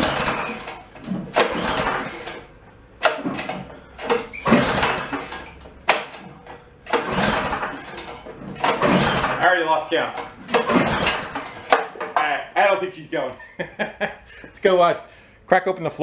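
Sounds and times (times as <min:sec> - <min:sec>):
engine pull-starter rope rasping: 0:00.0 - 0:12.0.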